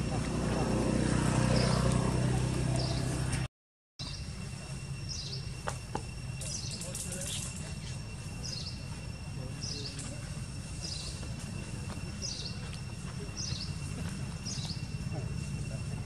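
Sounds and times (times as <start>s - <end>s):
high insect drone: 4.0s - 16.0s.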